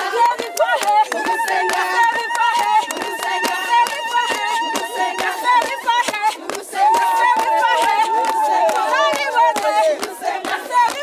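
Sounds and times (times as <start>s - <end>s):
women singing in high voices: 0.0s - 11.0s.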